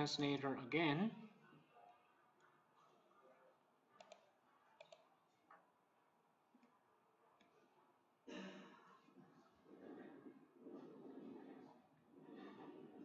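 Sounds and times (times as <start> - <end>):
faint clicks: 4.0 - 5.6.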